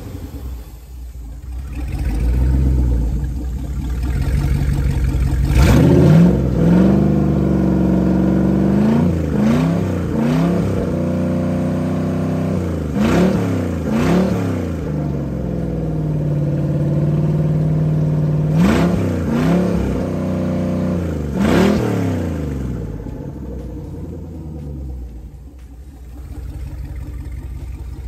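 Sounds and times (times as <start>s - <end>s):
boat engine idling and revving: 0.0s - 28.0s
exhaust water spraying: 0.0s - 28.0s.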